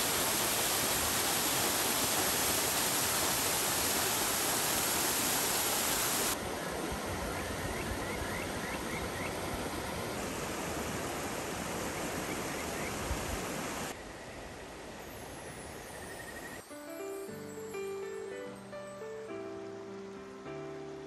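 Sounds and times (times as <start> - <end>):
mountain stream rushing: 0.0 - 14.0.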